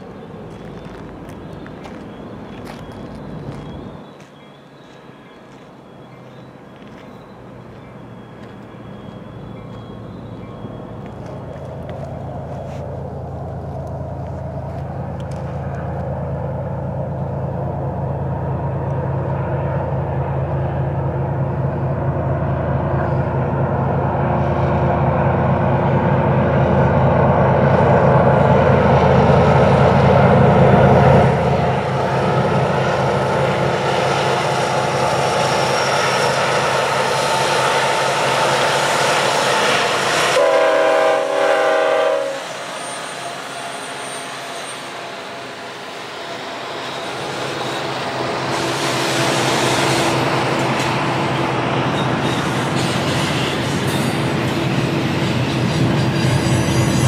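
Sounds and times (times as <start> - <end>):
diesel locomotive engine drone: 0.0 - 57.0
train cars rumbling on rails: 0.0 - 57.0
multi-note train air horn: 40.2 - 45.0.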